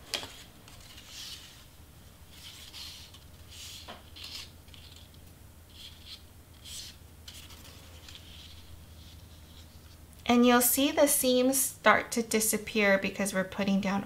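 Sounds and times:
cardstock rustling and scraping: 0.0s - 10.0s
low steady hum: 0.0s - 14.0s.

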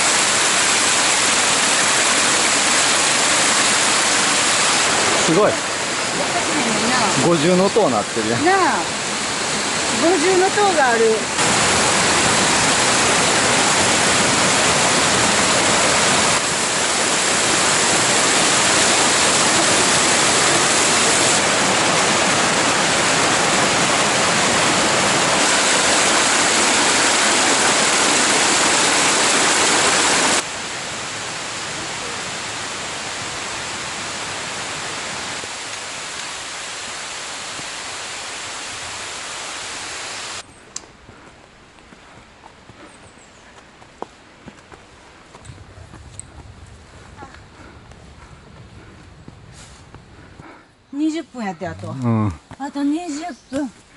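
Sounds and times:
stream rushing over rocks: 0.0s - 40.5s.

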